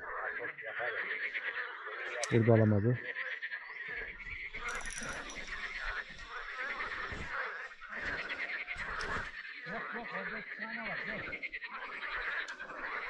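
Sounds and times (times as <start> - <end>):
frogs croaking: 0.0 - 13.0.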